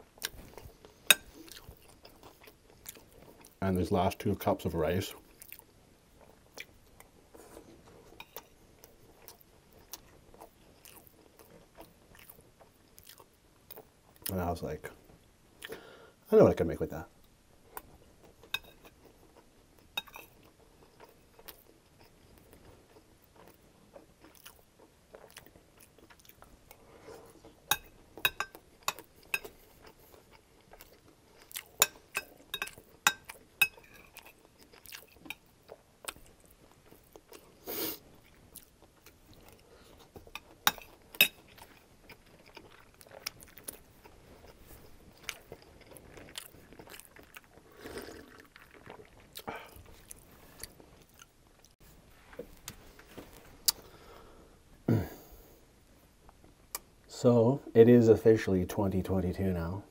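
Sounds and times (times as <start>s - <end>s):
chewing and crunching: 0.1s - 3.6s, 5.1s - 14.4s, 17.7s - 51.9s.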